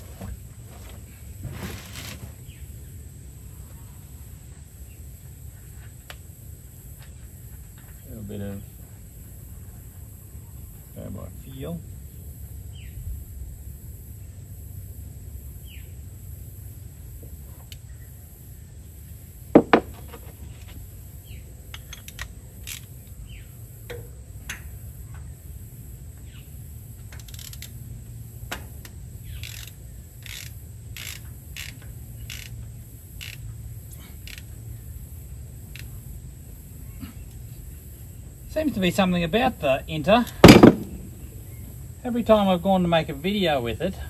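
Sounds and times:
insects trilling: 0.0 - 44.0
birds chirping: 32.1 - 43.1
sharp metallic clank: 40.4 - 41.5.

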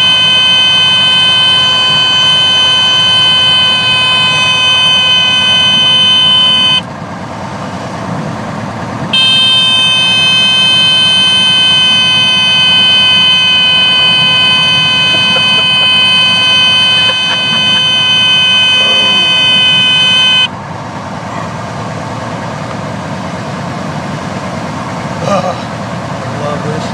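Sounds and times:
stall warning horn buzzing: 0.0 - 7.0, 9.1 - 21.1.

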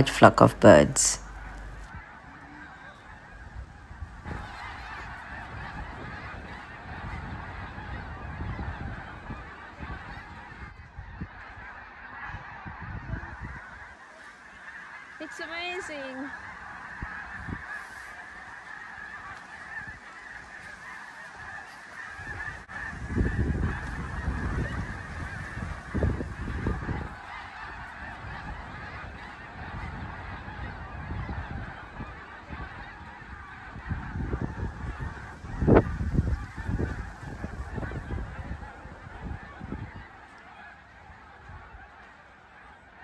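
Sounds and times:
low buffeting rumbles: 0.0 - 2.0
flock of geese calling: 0.0 - 43.0.

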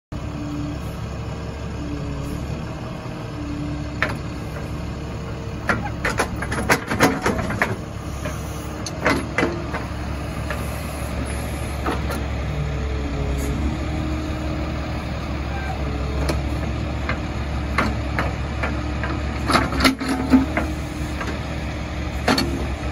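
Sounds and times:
backhoe engine hum: 0.1 - 22.9
metal clanks and knocks: 5.6 - 10.6.

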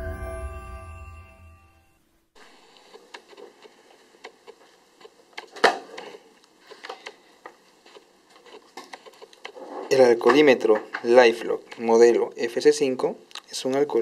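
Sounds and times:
intro jingle: 0.0 - 2.0.

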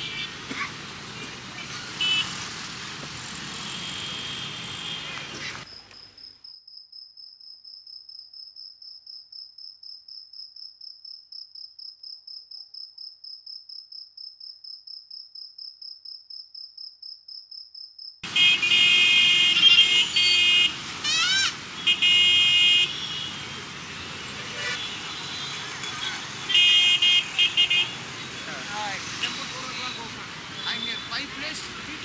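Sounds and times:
vehicle horns honking: 0.0 - 2.6, 3.4 - 5.7, 18.2 - 31.9
street traffic: 0.0 - 6.2, 18.2 - 32.0
cricket chirping: 5.6 - 18.2.

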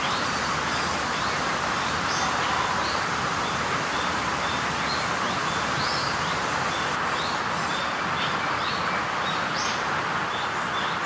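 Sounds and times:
steady rushing hiss: 0.0 - 7.1
small birds chirping: 0.0 - 11.0.

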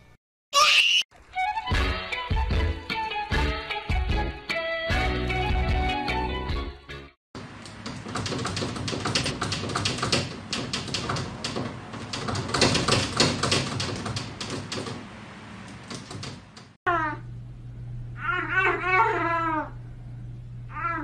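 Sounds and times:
cat scratching at glass door: 7.4 - 15.0.

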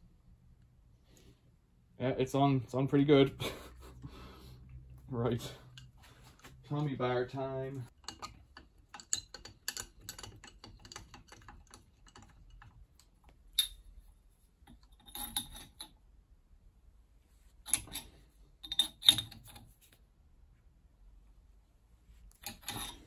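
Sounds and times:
metal tools clicking and clinking: 7.9 - 12.8, 14.7 - 16.0, 17.7 - 19.7, 22.3 - 23.0.

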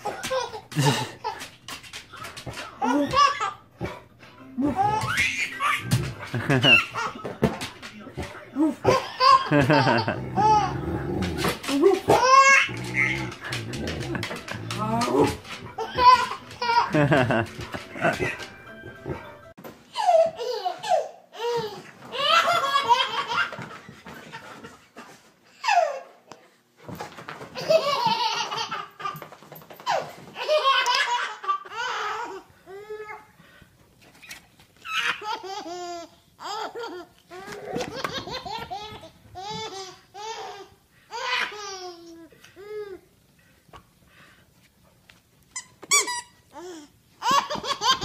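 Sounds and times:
baby laughing in squeals: 4.7 - 7.1.

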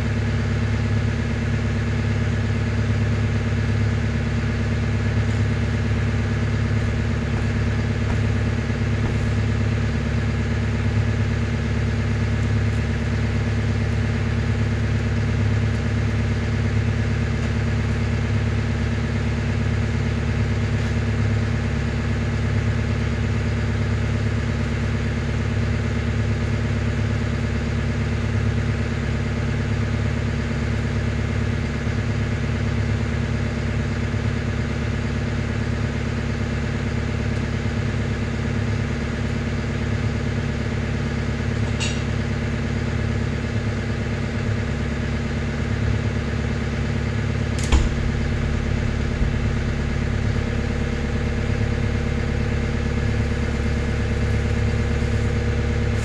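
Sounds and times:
engine idling: 0.0 - 56.0
sharp click: 47.6 - 50.1.

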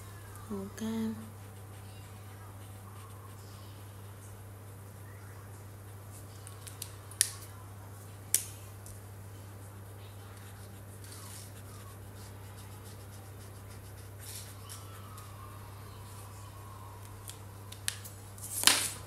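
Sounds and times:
steady low hum: 0.0 - 19.0
marker scratching on paper: 1.4 - 3.4, 10.4 - 14.8.

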